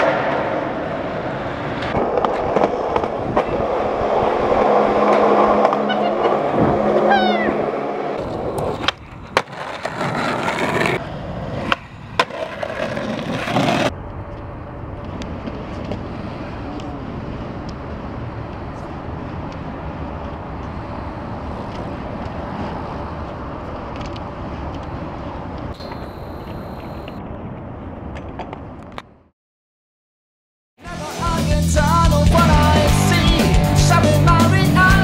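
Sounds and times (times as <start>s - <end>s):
skateboard wheels rolling on concrete: 0.0s - 7.5s, 8.2s - 29.3s, 30.8s - 35.0s
skateboard clacks: 1.8s - 3.8s, 8.2s - 13.9s.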